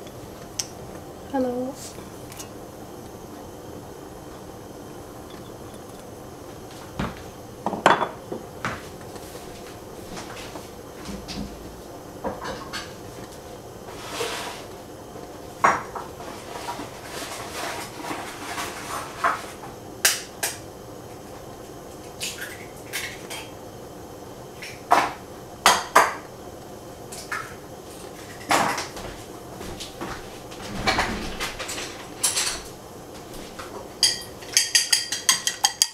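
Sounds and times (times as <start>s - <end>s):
dishes and pans clinking: 34.0s - 35.9s.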